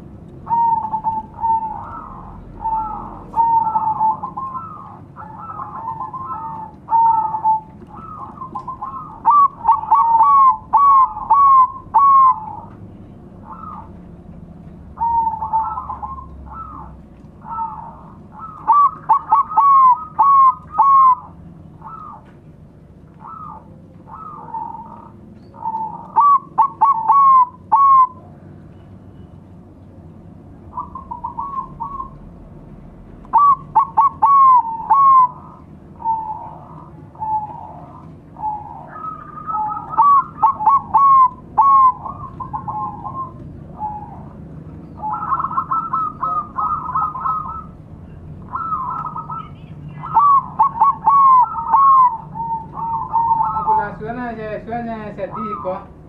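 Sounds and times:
doves cooing: 0:00.0 - 0:29.2, 0:30.5 - 0:56.0.

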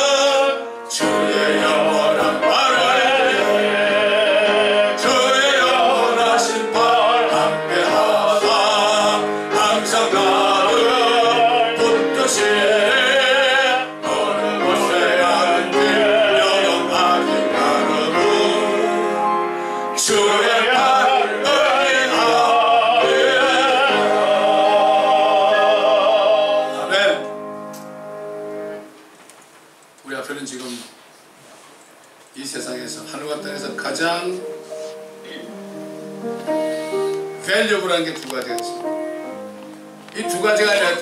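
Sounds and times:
man singing a hymn: 0:00.0 - 0:27.4, 0:40.1 - 0:41.0
instrumental accompaniment: 0:00.0 - 0:29.9, 0:33.0 - 0:41.0
singer breathing: 0:19.5 - 0:20.0.

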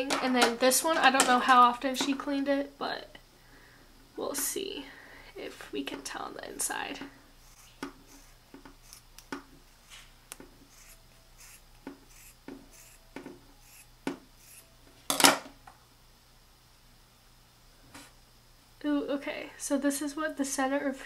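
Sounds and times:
scissors snipping foam: 0:07.5 - 0:09.4.

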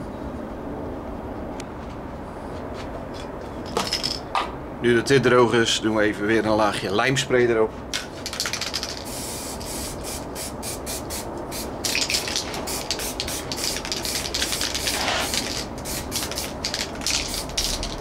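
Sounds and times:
aerosol can hissing: 0:09.0 - 0:16.6.

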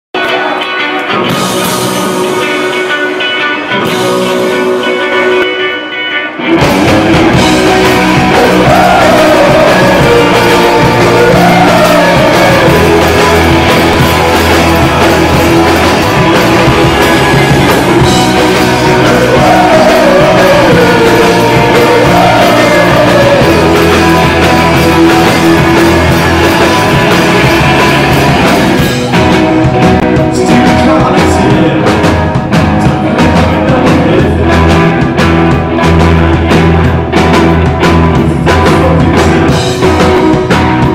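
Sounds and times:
rock band playing live: 0:00.1 - 0:40.9
person singing: 0:07.6 - 0:32.1.

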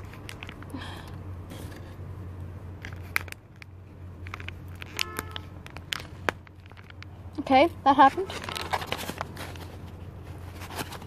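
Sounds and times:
plastic bag crinkling: 0:02.8 - 0:11.0
bag rustling: 0:08.0 - 0:11.0.

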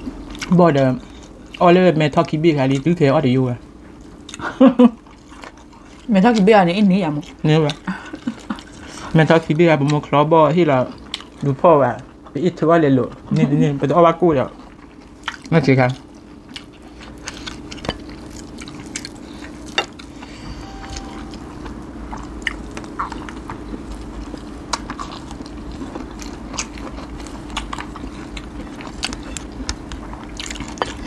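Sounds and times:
people chewing food: 0:00.0 - 0:31.0
steady low hum: 0:14.4 - 0:31.0
mouth clicks and crunches: 0:22.5 - 0:31.0.

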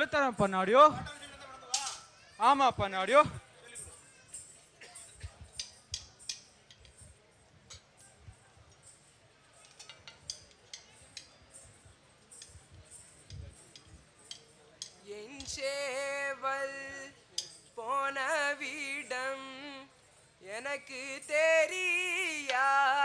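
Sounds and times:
light clicks and metallic clinks: 0:01.7 - 0:02.1, 0:03.6 - 0:17.9
man singing: 0:15.0 - 0:17.2, 0:17.8 - 0:23.0.

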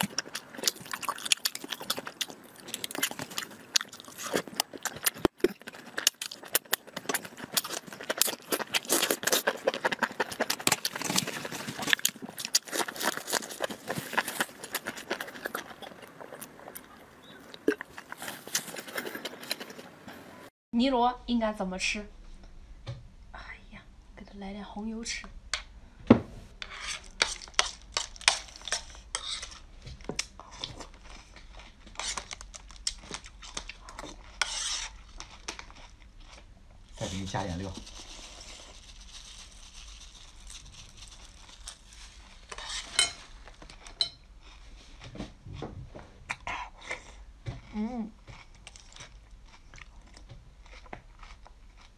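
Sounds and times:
person slurping and chewing: 0:00.0 - 0:20.0, 0:26.6 - 0:45.0.

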